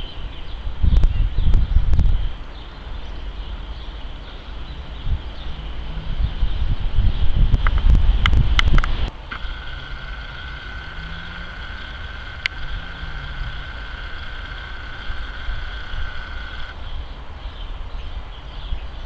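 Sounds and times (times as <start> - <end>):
jet airliner rumbling overhead: 9.3 - 16.7.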